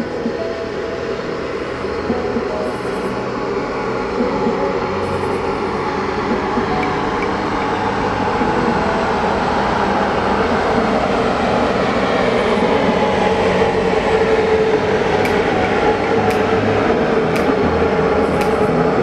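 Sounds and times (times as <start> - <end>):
sharp clicks: 17.4 - 17.6.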